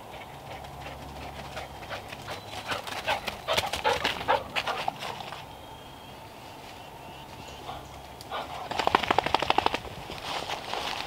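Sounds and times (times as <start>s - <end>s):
dogs running through dry leaves: 0.6s - 5.5s, 8.4s - 11.0s.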